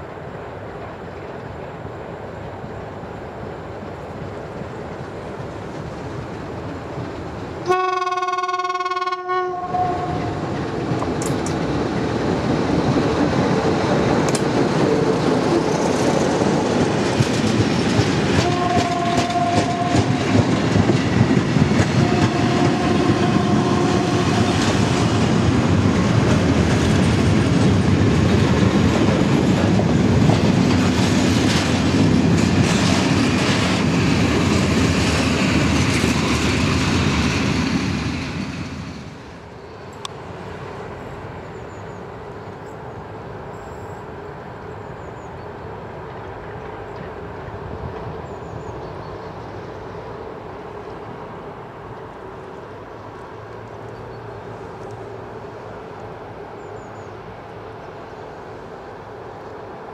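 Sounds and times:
locomotive horn: 7.6 - 10.4, 18.4 - 20.1, 22.0 - 24.6
train wheels clattering over rails: 9.7 - 39.6.

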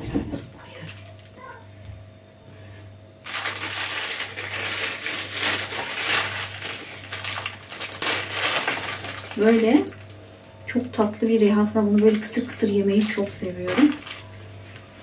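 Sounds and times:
plastic wrapper crinkling: 3.2 - 10.2, 11.8 - 15.0.

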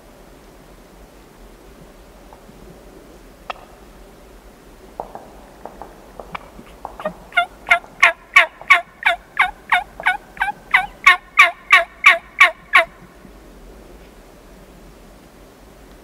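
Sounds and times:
wild turkey yelping: 6.8 - 13.0.

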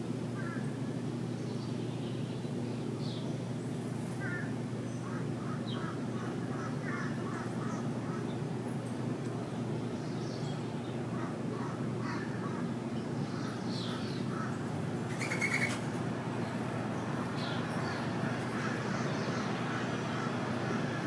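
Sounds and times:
steady low hum: 0.0 - 21.0
birds chirping: 9.4 - 21.0
harsh bird call: 13.8 - 15.9.

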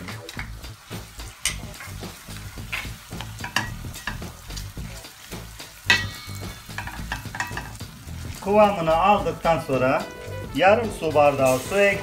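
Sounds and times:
spoon clacking against pan: 0.0 - 8.4
food sizzling in a pan: 0.0 - 12.0
spoon scraping a pan: 2.6 - 4.3, 5.8 - 7.8.

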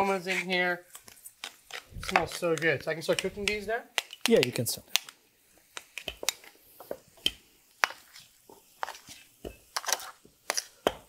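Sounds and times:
cooking utensils clicking and knocking: 0.0 - 11.0.

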